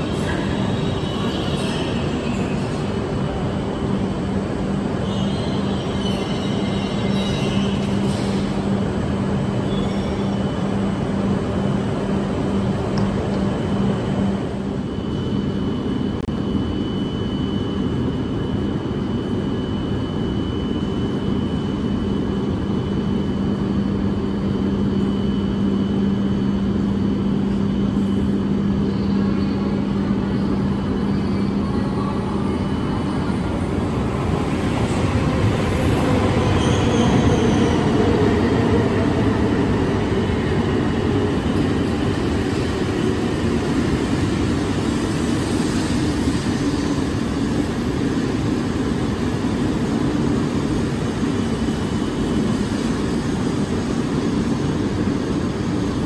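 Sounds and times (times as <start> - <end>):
train rumble: 22.3 - 56.0.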